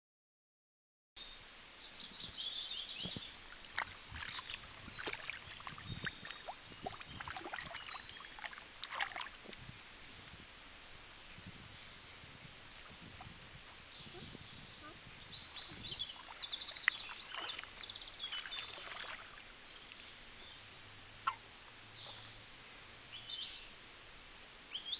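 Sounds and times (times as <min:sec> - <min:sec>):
birds chirping: 0:02.0 - 0:24.9
water sloshing and splashing: 0:03.0 - 0:09.8, 0:12.7 - 0:13.5, 0:15.4 - 0:19.7
stream rushing: 0:03.2 - 0:09.6, 0:15.4 - 0:19.6.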